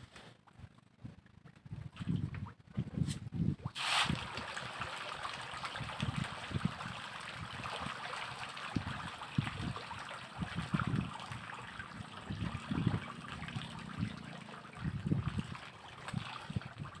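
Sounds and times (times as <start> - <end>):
fish splashing water: 3.6 - 17.0.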